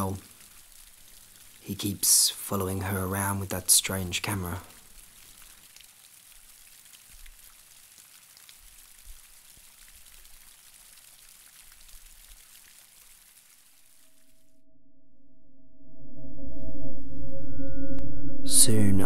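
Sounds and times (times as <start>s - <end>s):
light rain pattering: 0.0s - 14.4s.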